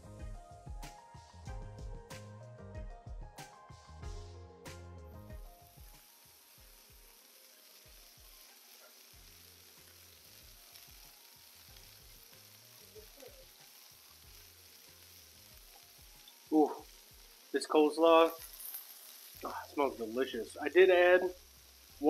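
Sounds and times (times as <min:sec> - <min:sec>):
background music: 0:00.0 - 0:22.0
burger patties sizzling on griddle: 0:05.1 - 0:22.0.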